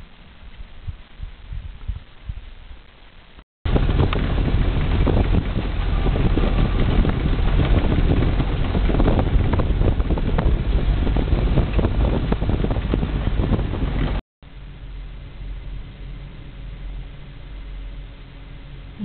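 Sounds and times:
wind buffeting microphone: 0.0s - 2.8s, 3.7s - 14.2s
vehicle rumbling over rough ground: 0.0s - 19.0s.

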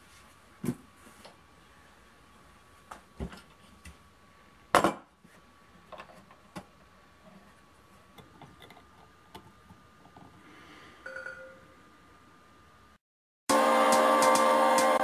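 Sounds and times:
faint high hum: 6.5s - 13.0s.

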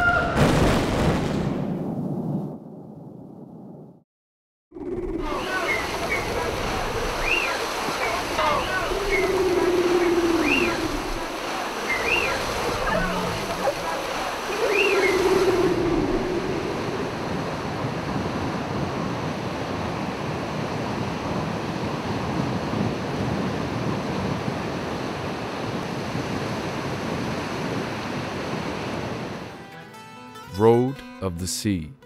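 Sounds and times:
ocean surf washing: 5.2s - 29.7s.

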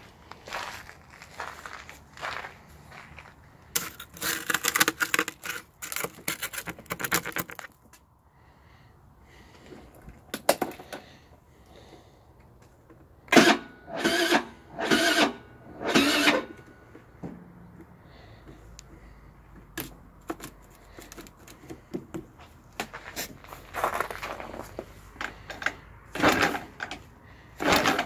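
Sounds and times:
scooter starter cranking: 13.3s - 16.7s, 25.2s - 28.0s.

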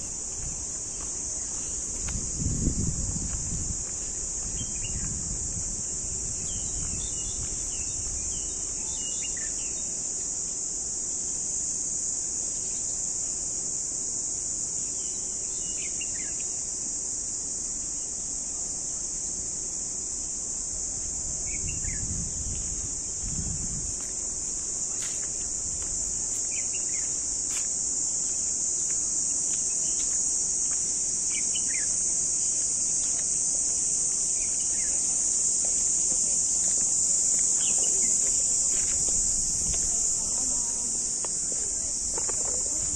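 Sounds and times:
insect drone: 0.0s - 42.9s.

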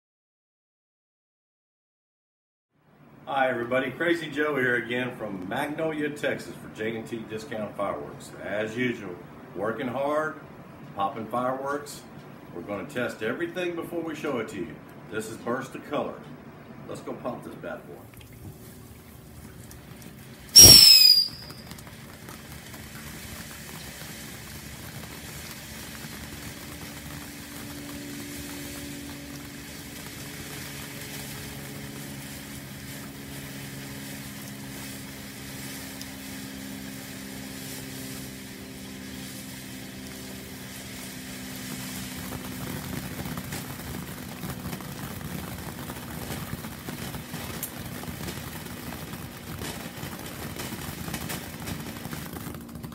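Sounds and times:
firework fountain spark hiss: 18.3s - 52.9s
loud sweeping burst: 20.6s - 21.6s.

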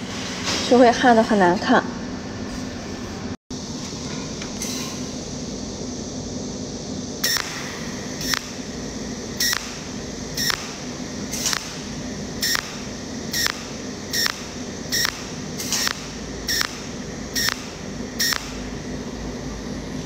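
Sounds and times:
welding pulses: 7.2s - 18.9s.

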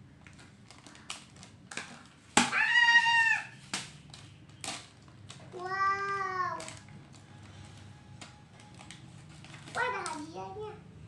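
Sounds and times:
plastic wrapper crinkling: 0.1s - 2.4s, 6.1s - 10.4s.

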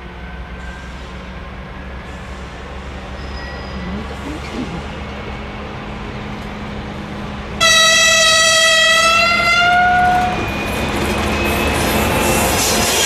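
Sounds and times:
diesel locomotive engine rumbling: 0.0s - 13.0s
locomotive horn blast: 7.6s - 10.4s.

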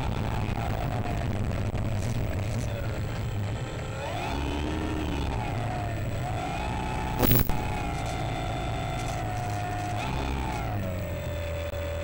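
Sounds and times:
electric motor and propeller whining: 3.9s - 12.0s
low rumble: 7.2s - 9.4s.

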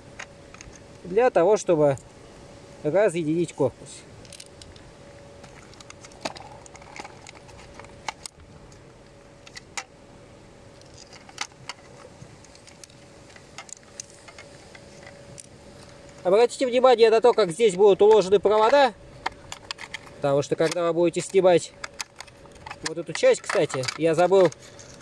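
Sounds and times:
plastic parts clicking and knocking: 5.4s - 8.4s, 10.8s - 15.5s, 17.2s - 25.0s.

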